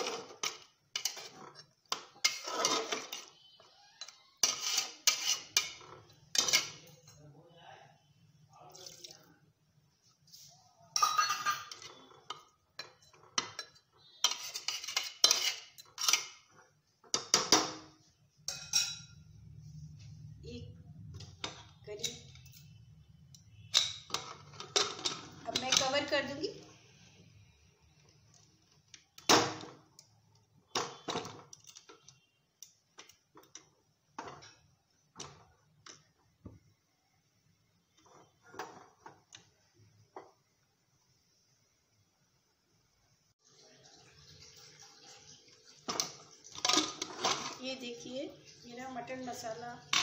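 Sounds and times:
metal spoon scraping a pot: 0:00.0 - 0:07.2, 0:11.0 - 0:19.2, 0:21.1 - 0:29.7, 0:37.8 - 0:39.5.

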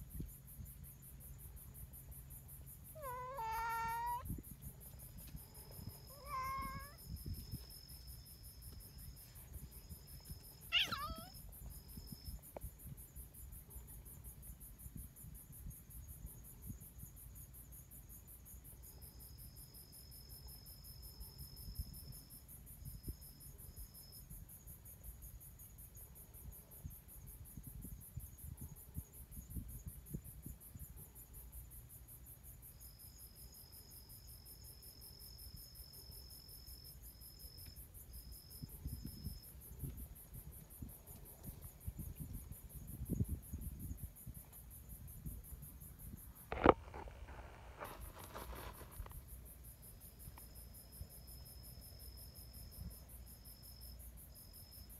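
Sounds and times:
crickets and insects chirping: 0:00.0 - 0:54.9.

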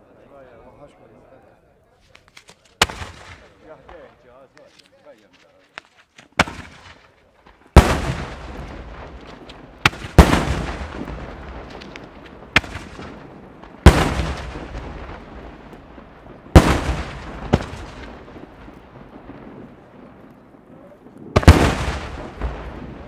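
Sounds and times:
sharp crack: 0:02.0 - 0:05.0, 0:05.7 - 0:19.5, 0:21.1 - 0:23.0
firework shells bursting: 0:02.1 - 0:04.1, 0:05.8 - 0:18.4, 0:21.3 - 0:22.8
rolling echo: 0:02.2 - 0:04.3, 0:06.3 - 0:23.0.

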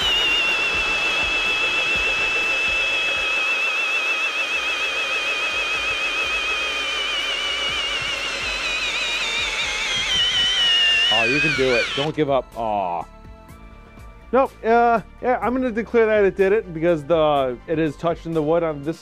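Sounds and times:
drill motor whining under load: 0:00.0 - 0:12.2.

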